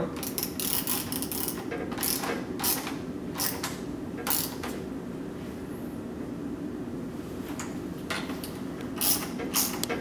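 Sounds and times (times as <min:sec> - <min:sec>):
socket ratchet clicking: 0:00.2 - 0:04.7, 0:09.0 - 0:10.0.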